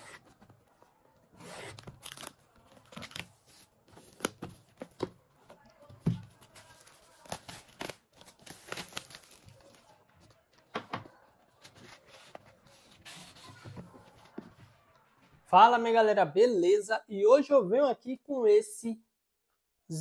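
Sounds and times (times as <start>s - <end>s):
packaging crinkling and crackling: 6.4s - 9.9s
packaging tearing: 7.2s - 9.6s.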